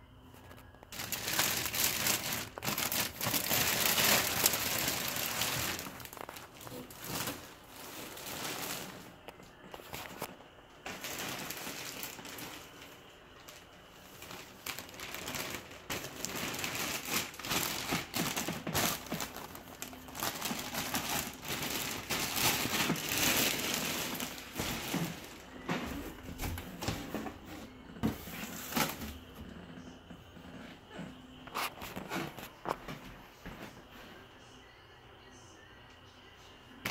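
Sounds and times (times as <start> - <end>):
plastic wrapping crinkling: 0.4 - 27.4.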